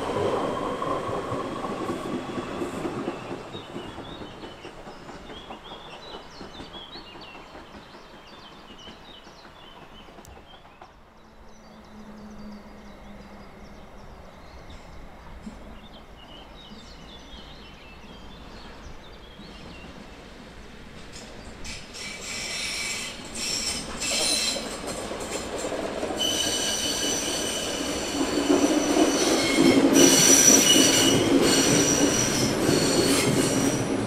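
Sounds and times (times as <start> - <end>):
songbirds chirping: 0.0 - 22.1.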